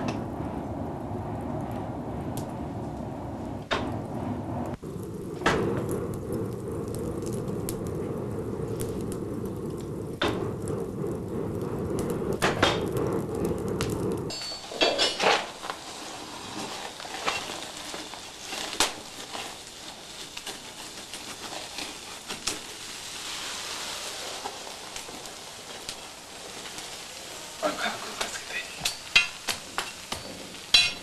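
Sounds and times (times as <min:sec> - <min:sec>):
forge fire roaring: 0:00.0 - 0:31.0
steel crackling with sparks: 0:00.0 - 0:31.0
tongs clinking on steel: 0:28.8 - 0:31.0.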